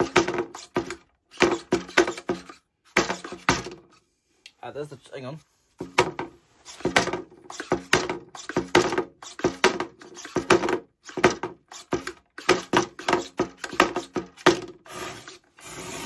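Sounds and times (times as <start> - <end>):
robot motors whirring: 14.9 - 16.0.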